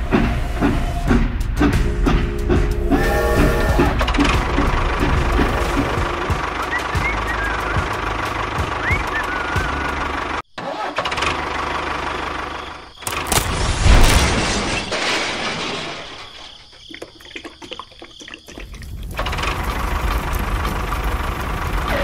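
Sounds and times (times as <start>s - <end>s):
tractor engine running: 0.0s - 13.4s, 18.9s - 22.0s
loud crash: 13.2s - 16.6s.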